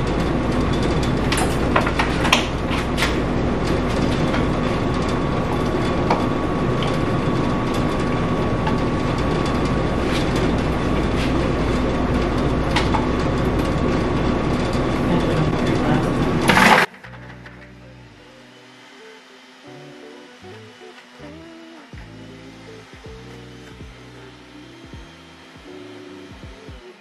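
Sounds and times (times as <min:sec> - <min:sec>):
blender running: 0:12.2 - 0:27.0.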